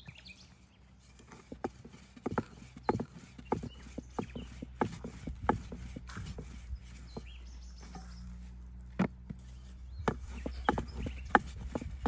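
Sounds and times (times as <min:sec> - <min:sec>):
sharp knocks and taps: 0:10.0 - 0:12.0.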